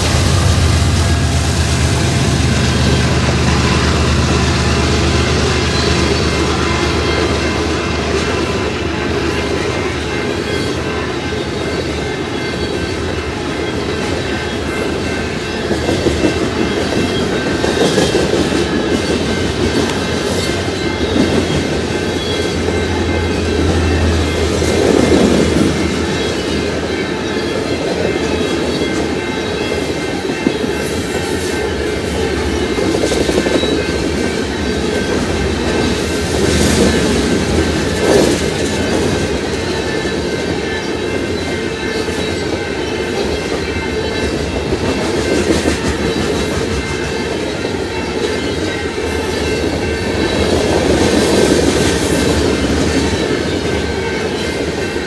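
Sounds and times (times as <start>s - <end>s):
freight train rolling past: 0.0s - 55.0s
steel wheels on rails: 0.0s - 55.0s.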